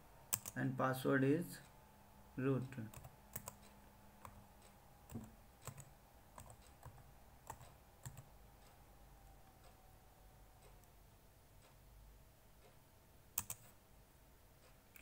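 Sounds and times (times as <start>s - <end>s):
computer keyboard keystrokes: 0.3s - 0.6s, 2.9s - 4.4s, 5.1s - 8.3s, 13.4s - 13.8s.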